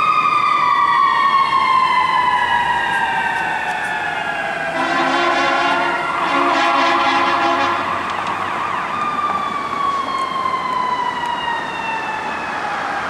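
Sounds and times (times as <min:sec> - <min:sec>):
siren winding down: 0:00.0 - 0:13.0
fire truck air horn: 0:04.7 - 0:08.1.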